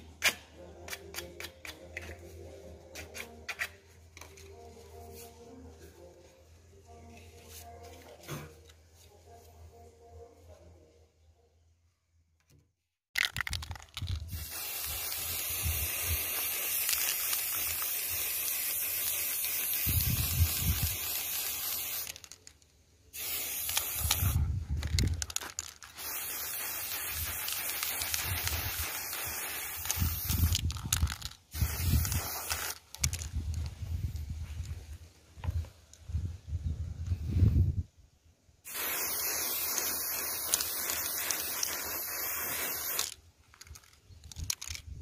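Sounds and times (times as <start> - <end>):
aerosol spray can hissing: 14.3 - 22.3, 23.2 - 24.4, 25.1 - 33.2, 38.7 - 43.2.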